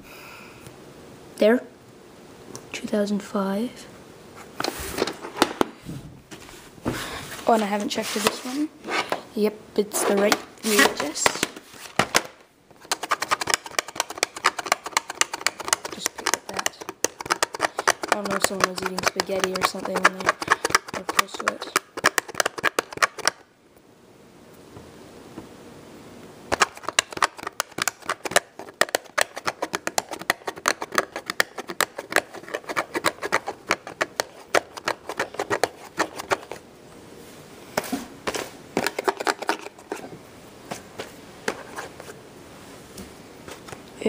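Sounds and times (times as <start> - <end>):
hands clicking tape case: 10.2 - 23.4, 26.5 - 36.6, 38.8 - 40.0.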